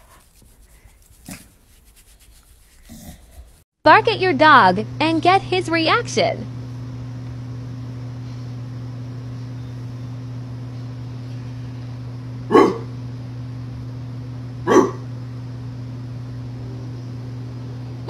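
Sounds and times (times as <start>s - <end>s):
steady low hum: 0.0s - 18.0s
dog barks: 12.5s - 12.9s, 14.6s - 15.1s.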